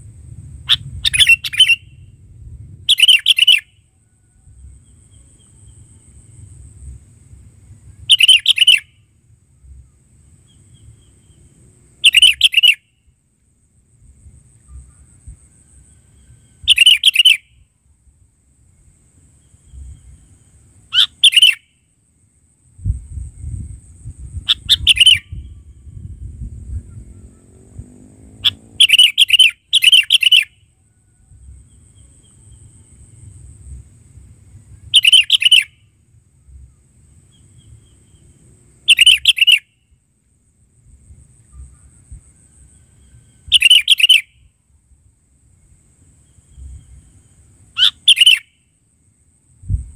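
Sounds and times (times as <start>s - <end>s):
low rumble: 0.0s - 2.9s, 25.3s - 28.8s
bird singing whistled phrases: 0.7s - 2.1s, 2.9s - 3.8s, 8.1s - 9.0s, 12.0s - 12.9s, 16.5s - 17.6s, 21.0s - 21.7s, 24.5s - 26.0s, 28.4s - 30.6s, 35.0s - 35.8s, 38.9s - 39.7s, 43.5s - 44.4s, 47.8s - 48.6s.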